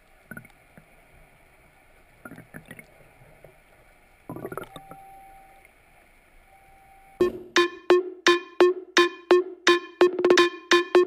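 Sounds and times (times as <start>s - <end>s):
underwater bubbling and clicks: 0.0s - 0.9s, 1.9s - 5.8s
faint steady hiss: 0.0s - 7.9s.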